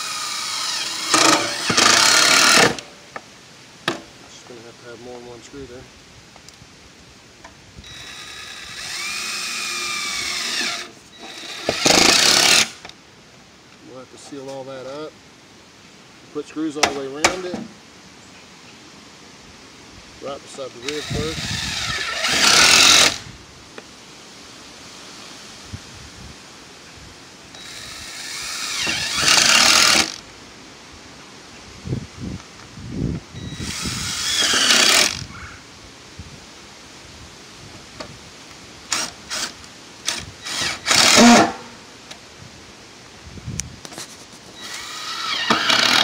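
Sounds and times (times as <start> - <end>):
cordless drill driving screw: 0.0 - 2.8, 7.8 - 12.9, 20.8 - 23.2, 27.5 - 30.2, 33.4 - 35.3, 38.9 - 41.6, 44.6 - 46.0
drill click: 0.0 - 2.9, 7.9 - 12.9, 20.9 - 23.2, 27.5 - 30.2, 33.5 - 35.2, 38.9 - 41.6, 44.6 - 46.0.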